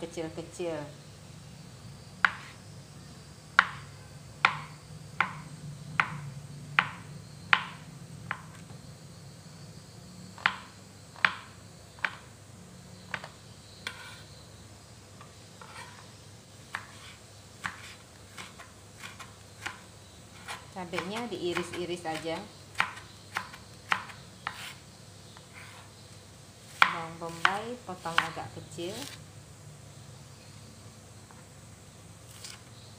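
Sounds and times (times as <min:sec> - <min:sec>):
knife chopping on plastic board: 0:02.2 - 0:02.6, 0:03.6 - 0:03.8, 0:04.4 - 0:06.2, 0:06.8 - 0:08.6, 0:10.4 - 0:12.3, 0:16.7 - 0:19.8, 0:20.4 - 0:24.8, 0:26.7 - 0:29.2.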